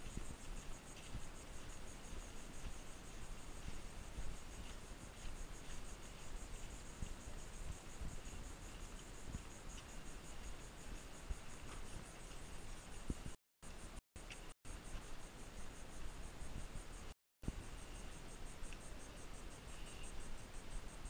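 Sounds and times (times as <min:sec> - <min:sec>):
footsteps on wooden boardwalk: 0:00.0 - 0:15.1
insect chorus trilling: 0:14.2 - 0:21.0.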